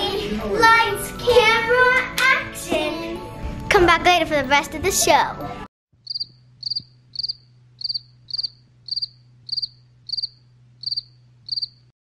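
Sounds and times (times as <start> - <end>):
crickets chirping: 6.1 - 11.9.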